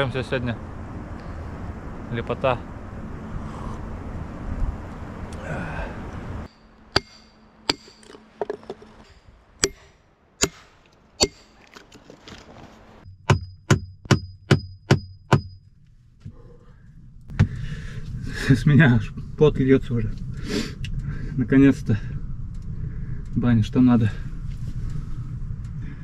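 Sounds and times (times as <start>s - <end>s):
hatchet striking wood: 6.5s - 8.8s, 9.6s - 11.9s, 13.2s - 15.6s.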